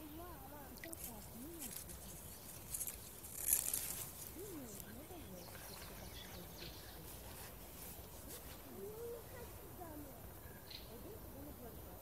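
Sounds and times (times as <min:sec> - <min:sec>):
rustling close to microphone: 0:00.7 - 0:10.3
faint distant voice: 0:04.2 - 0:12.0.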